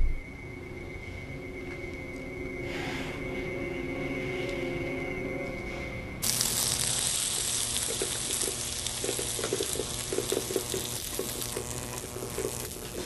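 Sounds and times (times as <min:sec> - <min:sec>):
music: 0:00.0 - 0:06.4
loud steady hiss: 0:06.2 - 0:13.0.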